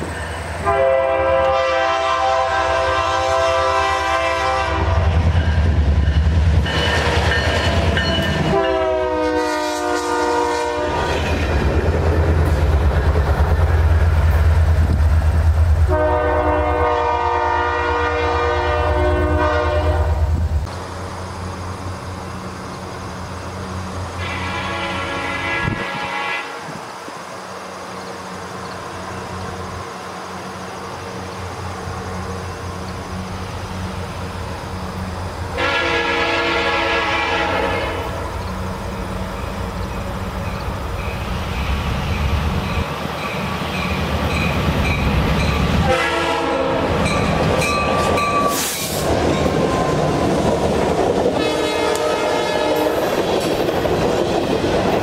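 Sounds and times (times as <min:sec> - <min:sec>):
diesel locomotive engine rumble: 0:00.0 - 0:55.0
train horn blasts: 0:00.6 - 0:05.3, 0:08.3 - 0:11.4, 0:15.9 - 0:20.4, 0:24.2 - 0:26.8, 0:35.6 - 0:38.3, 0:45.8 - 0:50.0, 0:51.3 - 0:53.2
train wheels clacking over rails: 0:04.9 - 0:09.3, 0:10.9 - 0:15.8, 0:38.3 - 0:55.0.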